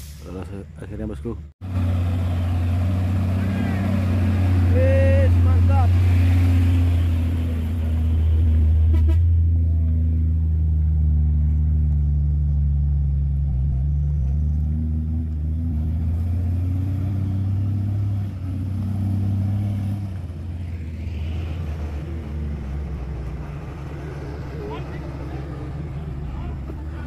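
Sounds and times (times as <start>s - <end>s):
diesel truck engine running: 1.6s - 18.2s.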